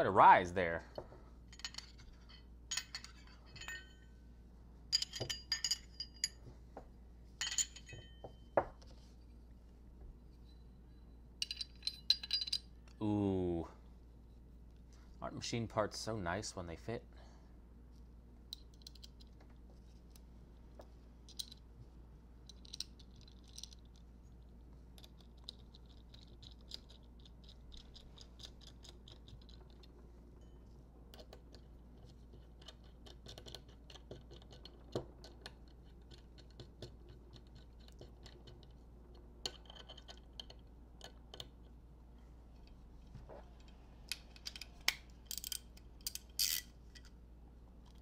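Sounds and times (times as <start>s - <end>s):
small metal parts clicking and scraping: 1.5s - 4.0s, 11.4s - 13.0s, 18.5s - 20.2s, 21.2s - 21.7s, 22.4s - 41.4s, 43.5s - 47.2s.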